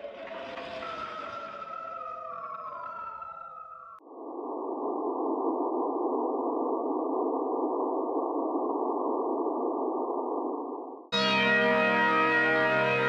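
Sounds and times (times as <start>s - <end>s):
electronic logo jingle tones: 11.2s - 13.0s.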